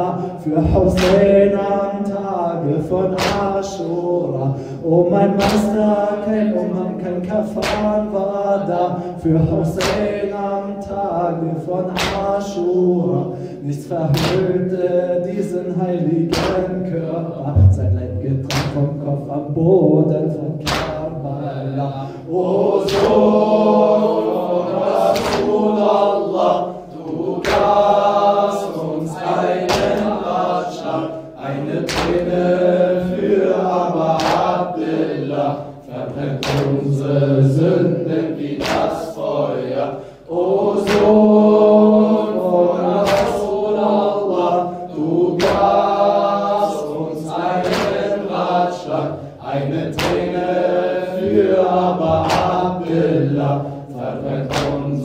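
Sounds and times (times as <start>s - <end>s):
group chanting: 0.0s - 17.5s, 19.8s - 55.0s
man singing into a microphone: 0.0s - 23.0s
chest-beating slaps: 0.8s - 1.4s, 3.0s - 3.6s, 5.4s - 5.9s, 7.6s - 8.0s, 9.7s - 10.2s, 12.0s - 12.4s, 14.1s - 14.6s, 16.3s - 16.7s, 18.4s - 18.9s, 20.6s - 21.2s, 22.8s - 23.5s, 25.0s - 26.0s, 27.3s - 27.9s, 29.6s - 30.4s, 31.8s - 32.3s, 34.1s - 34.6s, 36.3s - 36.9s, 38.5s - 39.0s, 40.8s - 41.2s, 42.9s - 43.5s, 45.4s - 45.9s, 47.5s - 48.2s, 49.8s - 50.4s, 52.2s - 52.7s, 54.4s - 55.0s.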